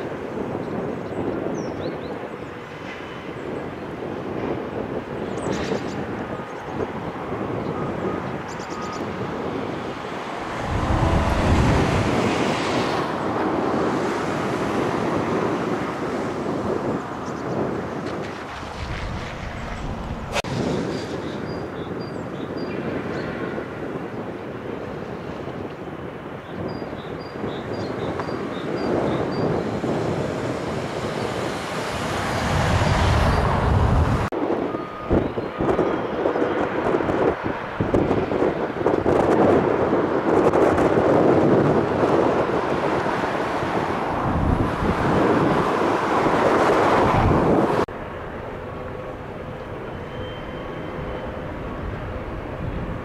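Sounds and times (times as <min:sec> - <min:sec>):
wind buffeting microphone: 0:00.0 - 0:53.0
diesel locomotive engine working: 0:07.1 - 0:14.4, 0:42.4 - 0:53.0
loud rushing noise: 0:09.6 - 0:16.5, 0:18.2 - 0:21.7, 0:29.6 - 0:34.3.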